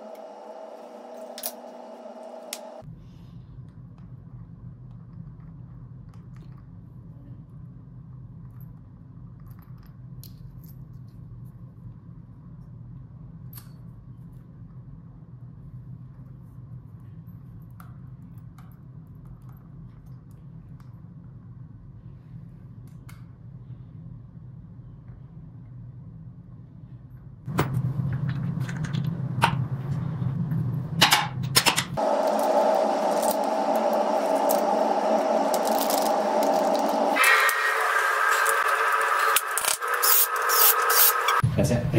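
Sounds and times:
steady low hum: 10.6s - 41.9s
steady hiss with rattling clicks: 32.0s - 37.2s.

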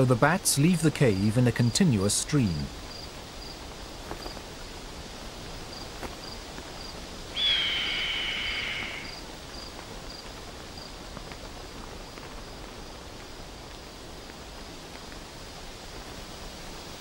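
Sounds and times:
faint insect chirping: 0.0s - 17.0s
hawk screaming: 7.4s - 9.1s.

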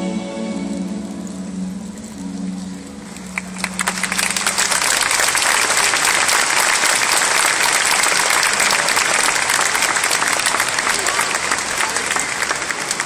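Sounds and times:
crowd applauding: 3.0s - 13.0s.

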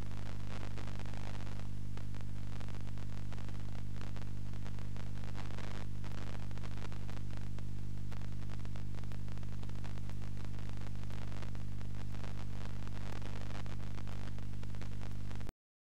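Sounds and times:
crackling clicks: 0.0s - 15.5s
tv low buzz: 0.0s - 15.5s.

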